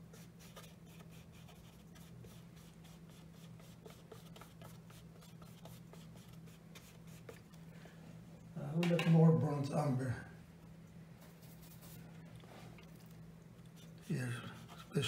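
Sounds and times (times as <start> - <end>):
brush strokes on wet paper: 11.2 - 12.9, 13.7 - 15.0.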